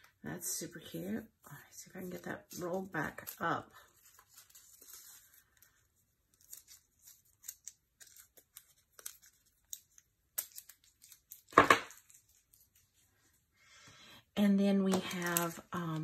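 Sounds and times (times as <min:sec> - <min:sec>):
sticky tape crackles: 0:06.3 - 0:12.8, 0:14.9 - 0:16.0.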